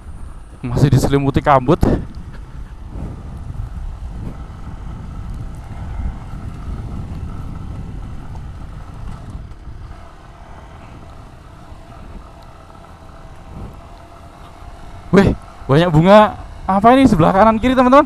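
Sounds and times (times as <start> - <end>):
motorcycle engine rumbling: 0.0 - 18.0.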